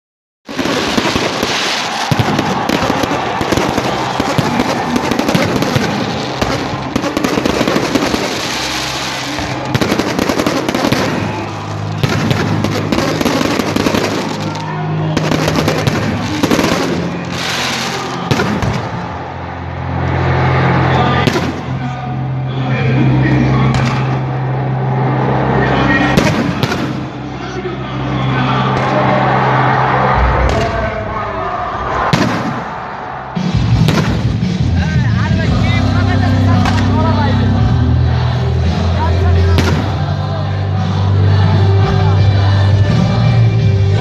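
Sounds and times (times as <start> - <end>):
fireworks crackling and popping: 0.5 - 14.6, 15.2 - 19.0.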